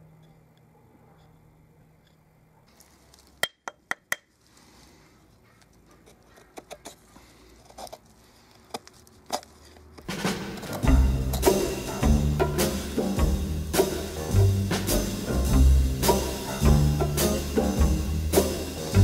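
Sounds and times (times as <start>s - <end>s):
music: 10.1s - 19.0s.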